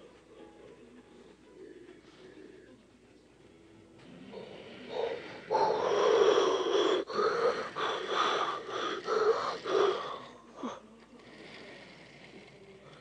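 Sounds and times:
person's breathy hoarse vocal pulses: 4.1s - 10.8s.

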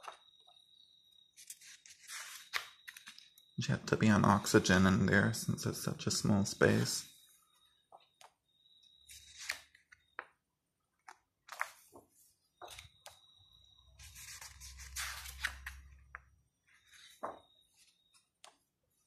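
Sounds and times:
book pages turning: 1.3s - 3.4s, 9.0s - 10.4s, 11.0s - 13.2s, 14.0s - 18.6s.

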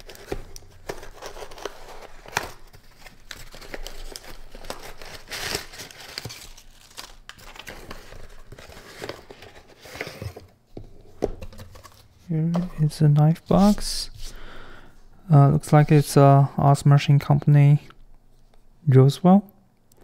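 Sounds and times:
cardboard tearing: 0.0s - 10.4s.

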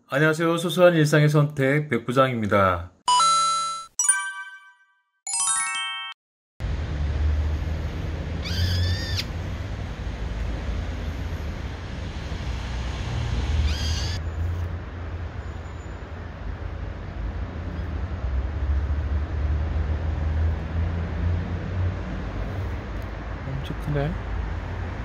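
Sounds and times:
chiming jingle: 3.1s - 6.2s
shrill bird calls: 8.4s - 9.3s, 13.6s - 14.2s.

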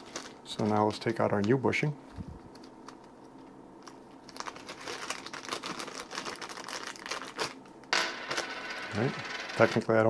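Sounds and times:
packaging crinkling: 0.0s - 1.6s, 3.8s - 7.7s.

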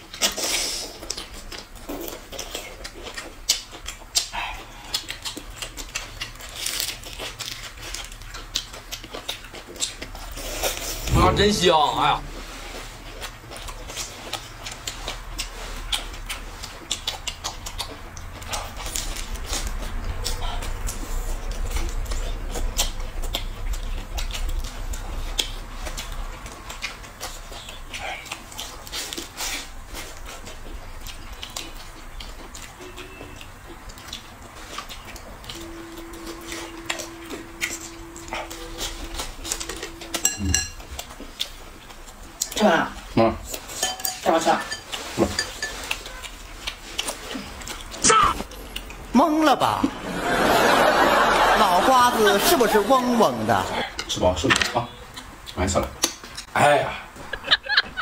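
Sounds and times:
lettuce crunching: 0.0s - 11.2s, 12.4s - 49.1s
wet mouth sucking and chewing: 0.0s - 49.1s
low rumble: 11.0s - 12.9s, 35.2s - 42.3s.

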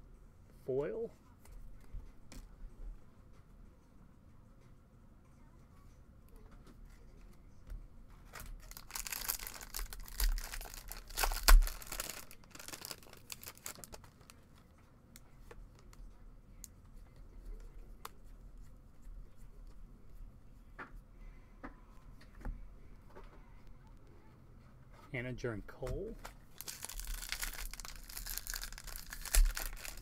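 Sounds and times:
wrapper tearing and crinkling: 8.4s - 14.4s, 26.6s - 30.0s
wrapper sharp snap: 8.8s - 14.0s, 26.6s - 30.0s.

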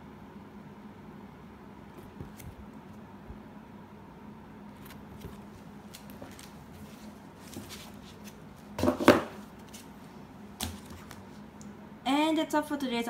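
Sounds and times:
plastic folders rustling: 4.8s - 10.0s.

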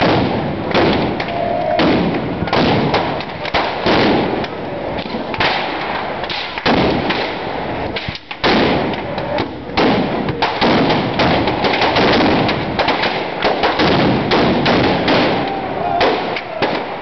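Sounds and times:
bonfire crackling: 0.0s - 17.0s
fireworks and firecrackers banging: 0.0s - 17.0s.

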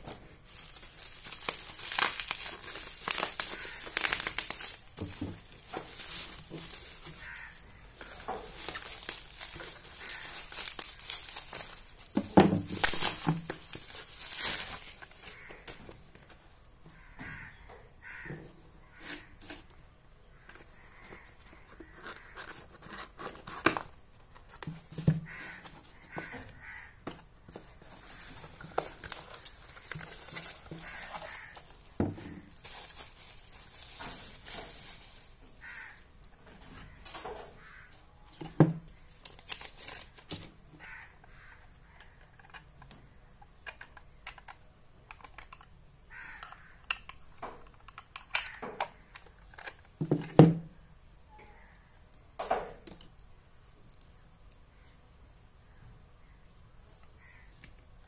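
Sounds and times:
packaging rustling and crinkling: 0.0s - 16.4s, 27.4s - 36.1s, 36.9s - 41.0s.

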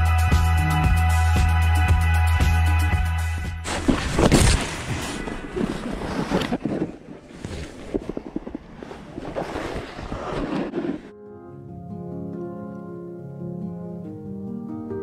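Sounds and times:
fabric rubbing microphone: 3.6s - 11.1s
snowboard scraping on snow: 3.6s - 11.1s.

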